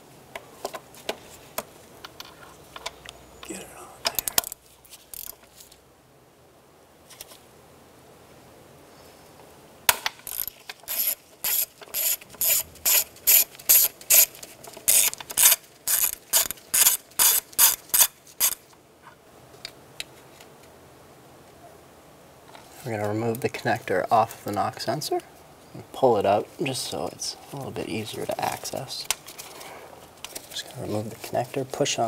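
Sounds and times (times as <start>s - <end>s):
ratchet clicking: 4.1s - 5.4s, 10.2s - 14.3s, 14.9s - 18.6s.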